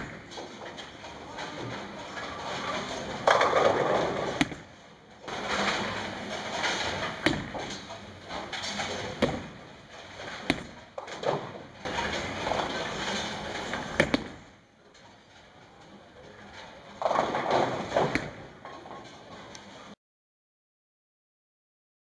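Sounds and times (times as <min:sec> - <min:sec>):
balls crashing into pins: 0:00.0 - 0:14.6, 0:16.9 - 0:19.3
bowling balls rolling: 0:00.0 - 0:20.0
ball landing on lane knocks: 0:03.3 - 0:04.7, 0:07.2 - 0:07.8, 0:10.3 - 0:11.1, 0:13.9 - 0:14.4.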